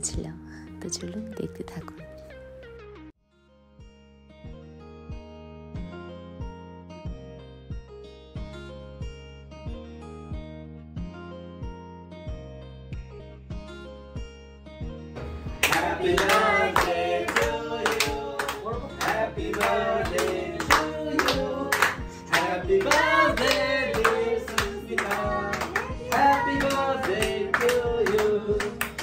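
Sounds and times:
people clapping in time: 0:15.5 - 0:29.0
singing: 0:15.7 - 0:29.0.

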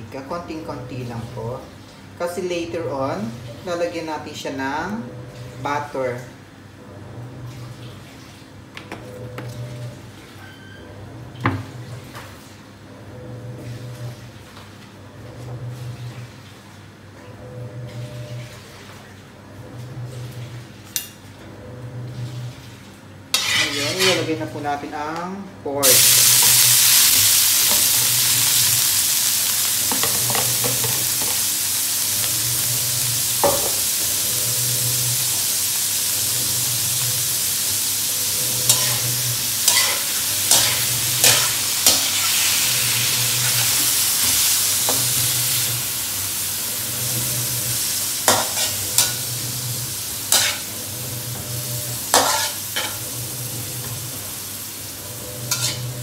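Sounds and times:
meat sizzling in a wok: 0:23.3 - 0:24.3, 0:25.8 - 0:56.0
spatula scraping a wok: 0:23.3 - 0:24.4, 0:38.2 - 0:45.7, 0:47.0 - 0:53.2, 0:55.2 - 0:56.0.

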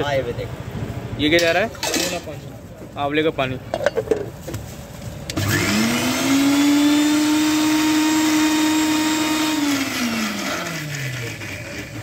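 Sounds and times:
mixer-grinder whining: 0:05.3 - 0:12.0.

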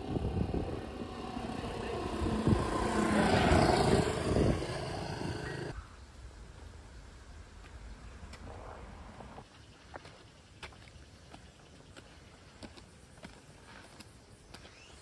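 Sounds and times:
motor vehicle passing: 0:00.0 - 0:05.8.

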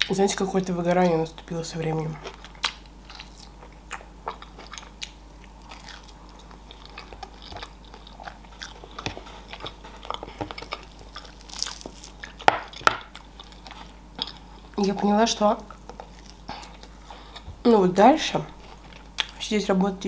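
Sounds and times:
chewing meat: 0:01.4 - 0:17.6
sticky crackle of rib pulled: 0:09.0 - 0:14.4.

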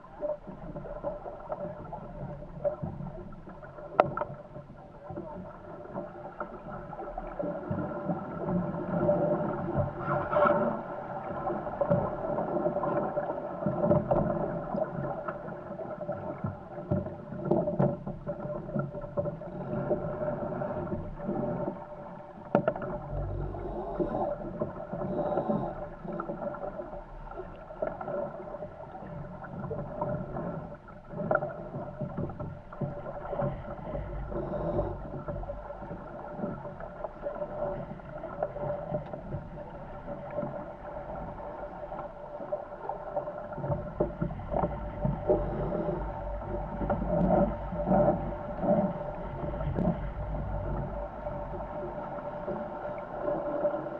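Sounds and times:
water rushing along hulls: 0:00.0 - 0:53.9
steady humming tone: 0:17.4 - 0:53.9.

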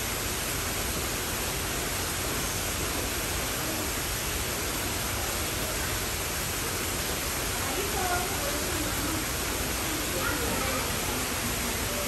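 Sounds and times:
water spilling over rocks: 0:00.0 - 0:12.0.

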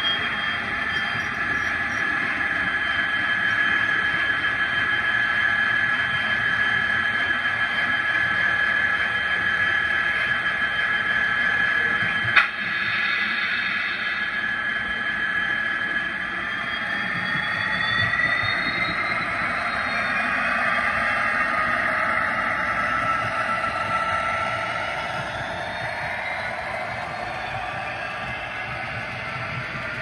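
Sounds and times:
trains running noise: 0:00.0 - 0:30.0
electric motors whining: 0:14.4 - 0:30.0.

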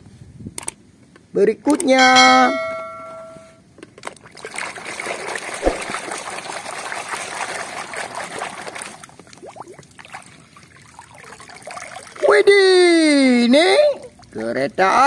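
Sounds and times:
water sloshing in plastic basin: 0:04.1 - 0:12.3
water dripping: 0:05.6 - 0:06.8, 0:08.8 - 0:12.4, 0:14.0 - 0:14.4.

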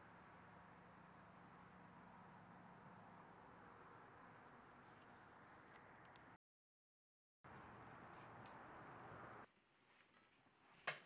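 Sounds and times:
cricket trilling: 0:00.0 - 0:05.8.

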